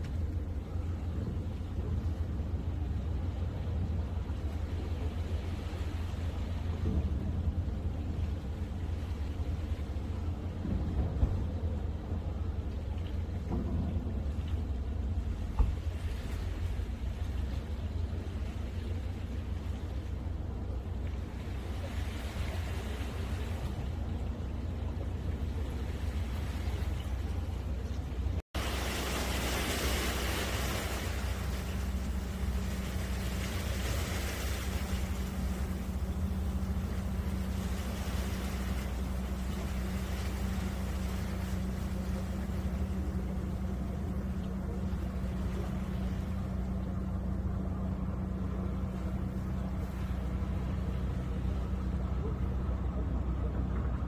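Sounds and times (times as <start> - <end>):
low engine hum: 0.0 - 54.0
steady low rumble: 0.0 - 54.0
calm sea water hiss: 28.6 - 43.9.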